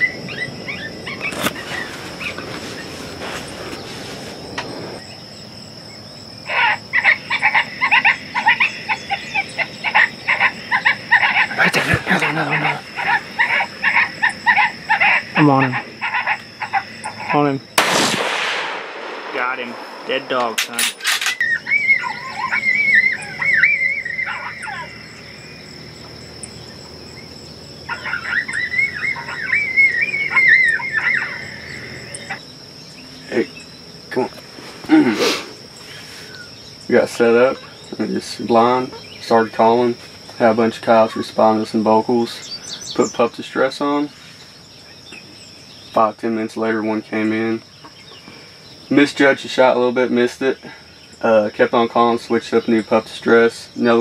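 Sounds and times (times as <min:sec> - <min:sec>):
coyote pup yelping cries: 0:00.0 - 0:02.4, 0:06.4 - 0:17.4, 0:21.4 - 0:32.4
high insect trill: 0:00.0 - 0:54.0.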